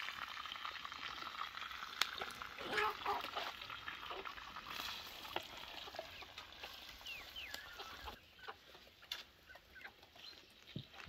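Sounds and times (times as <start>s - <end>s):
chickens clucking: 2.1s - 4.6s, 5.3s - 11.0s.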